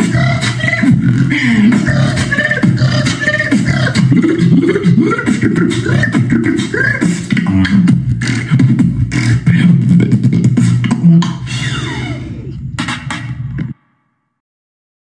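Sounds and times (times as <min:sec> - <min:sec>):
beatboxing percussion clicks: 0:00.0 - 0:11.7
sliding vocal bass: 0:00.0 - 0:13.7.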